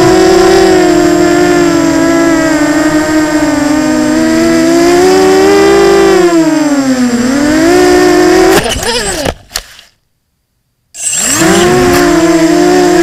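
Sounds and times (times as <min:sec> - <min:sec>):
drone hitting grass: 0:00.0 - 0:06.3
drone motors whining: 0:00.0 - 0:09.9, 0:11.0 - 0:13.0.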